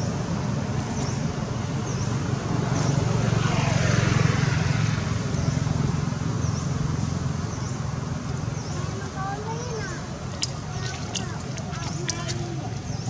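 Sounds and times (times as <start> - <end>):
passing vehicle engine drone: 2.4 - 7.4.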